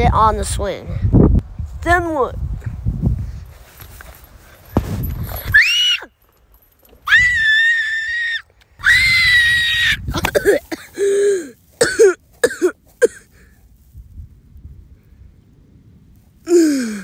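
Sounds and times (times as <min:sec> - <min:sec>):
person screaming: 0:07.1 - 0:10.1
person groaning: 0:16.5 - 0:17.0.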